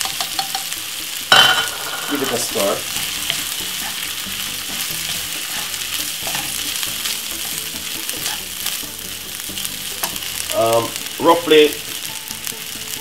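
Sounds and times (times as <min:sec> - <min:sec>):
rice sizzling in frying pan: 0:00.0 - 0:13.0
wooden spatula scraping pan: 0:01.6 - 0:09.0.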